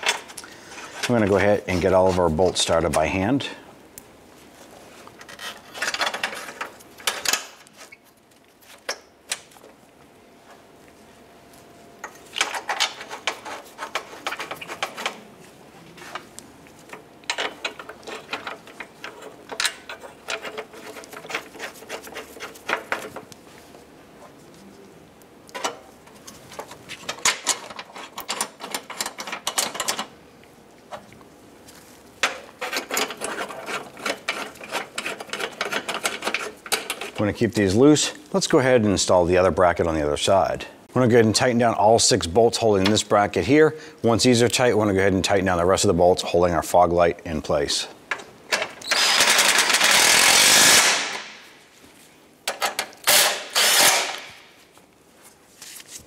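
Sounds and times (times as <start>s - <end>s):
rapid clicking of bolts: 48.1s - 51.2s.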